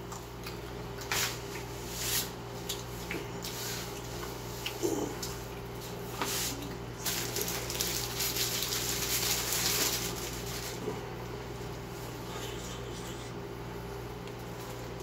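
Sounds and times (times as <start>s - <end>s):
paper wrapper rustling: 7.0s - 10.8s.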